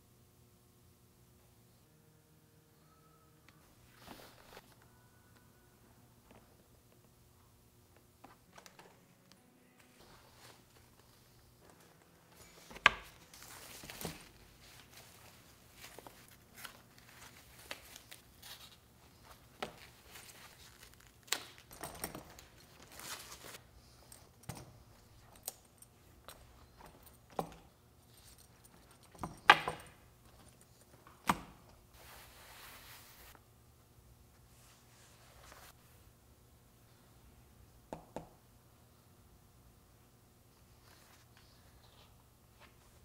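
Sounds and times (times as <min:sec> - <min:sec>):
leather flaps and straps shifting: 0:12.4 - 0:23.6
paper wrapping rustling: 0:12.4 - 0:23.6.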